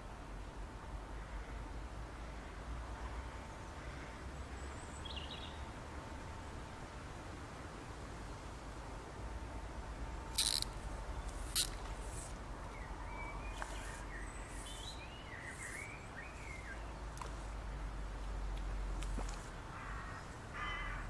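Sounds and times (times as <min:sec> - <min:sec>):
fly line swishing: 0:10.4 - 0:12.4, 0:13.5 - 0:16.6
bird chirps: 0:12.7 - 0:16.9.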